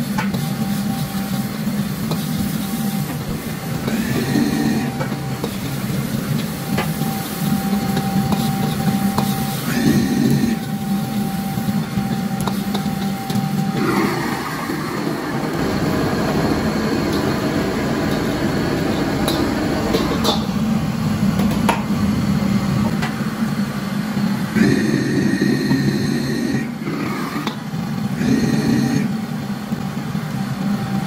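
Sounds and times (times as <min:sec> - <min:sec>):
beans sizzling in a wok: 0:00.0 - 0:21.2
gas burner rushing: 0:00.0 - 0:31.0.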